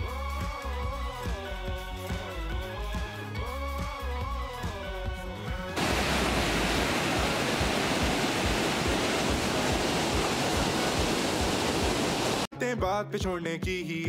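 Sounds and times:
background music: 0:00.0 - 0:07.9, 0:12.5 - 0:14.0
whitewater river rushing: 0:05.8 - 0:12.5.

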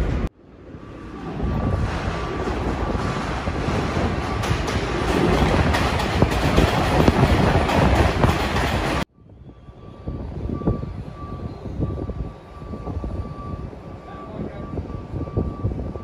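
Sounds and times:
train wheels clacking on rails: 0:01.2 - 0:09.1.

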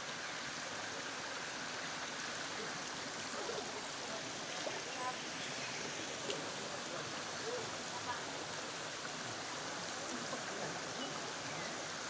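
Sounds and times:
water splashing over rocks: 0:00.0 - 0:12.0.

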